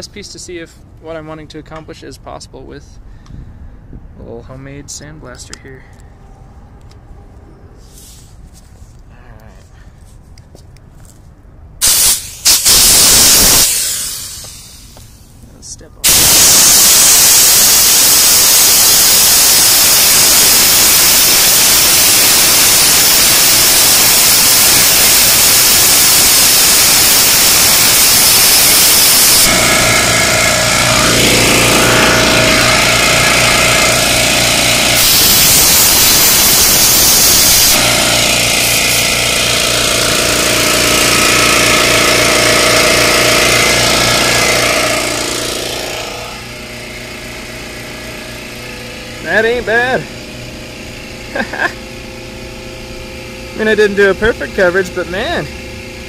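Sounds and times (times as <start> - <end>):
sandblaster hissing: 11.8 - 15.3, 16.0 - 46.5
steady machine hum: 11.8 - 56.0.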